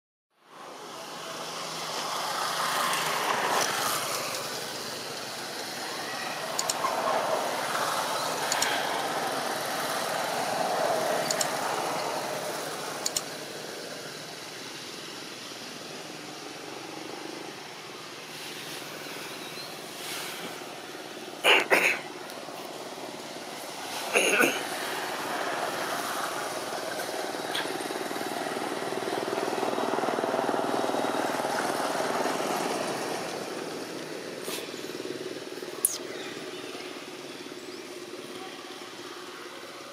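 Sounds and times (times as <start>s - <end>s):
vehicle passing: 0.7s - 14.9s, 22.0s - 37.2s.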